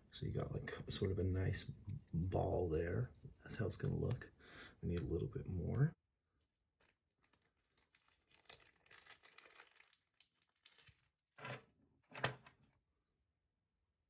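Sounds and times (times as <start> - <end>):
packet crinkling and rustling: 6.8 - 11.2.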